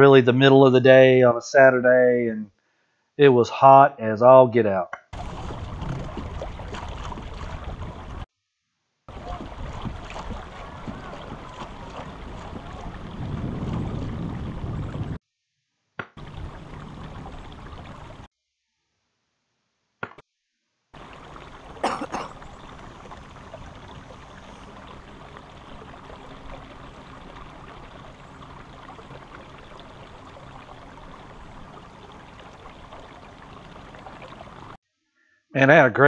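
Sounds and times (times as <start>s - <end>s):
electric trolling motor: 5.2s - 8.2s
splash or knock: 5.2s - 8.2s, 9.1s - 14.1s
water trickling along canoe hull: 5.2s - 8.2s, 9.1s - 15.2s, 16.2s - 18.3s, 21.0s - 34.8s.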